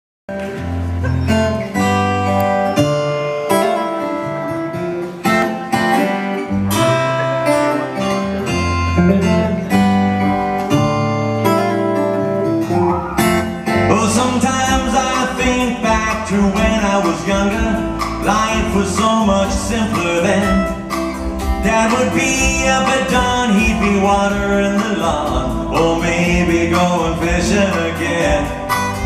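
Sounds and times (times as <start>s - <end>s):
strummed acoustic guitar chords: 0.3s - 29.0s
electric bass notes: 6.4s - 29.0s.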